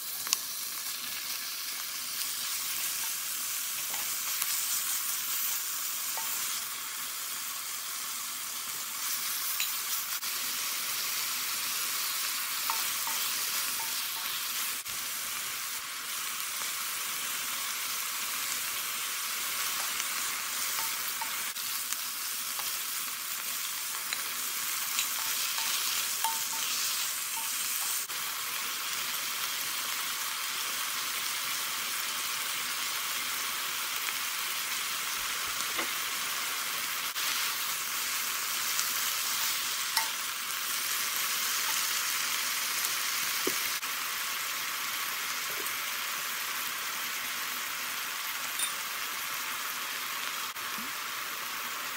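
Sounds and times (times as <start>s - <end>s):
small pops of frying: 0.0s - 6.7s, 9.1s - 10.4s, 11.0s - 15.0s, 19.3s - 28.2s, 35.6s - 36.2s, 37.1s - 44.0s
meat and onion sizzling in a wok: 0.0s - 51.9s.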